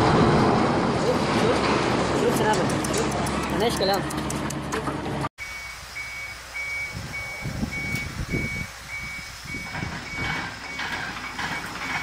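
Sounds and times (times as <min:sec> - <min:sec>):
diesel engine running: 0:00.0 - 0:12.0
excavator travel alarm beeping: 0:05.4 - 0:12.0.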